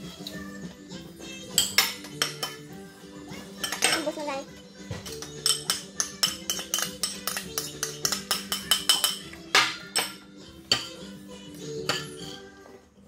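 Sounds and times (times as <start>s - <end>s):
background music: 0.0s - 13.0s
cutlery clinking on plate: 3.6s - 4.1s, 4.9s - 11.0s, 11.8s - 12.5s.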